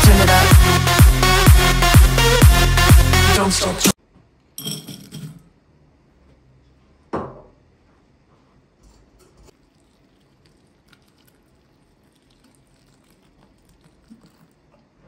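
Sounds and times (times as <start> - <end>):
hot water pouring into bowl: 9.6 - 14.7.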